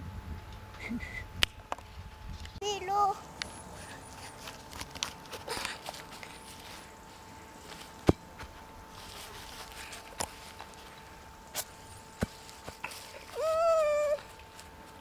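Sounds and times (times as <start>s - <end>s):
faint high whine: 0.0s - 15.0s
high-pitched voice-like sound: 13.4s - 14.3s.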